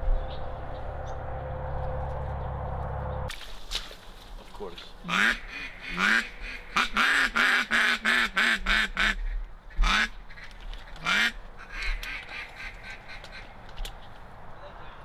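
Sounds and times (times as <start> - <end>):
duck call quacks: 5.1 - 10.4, 11.0 - 13.5.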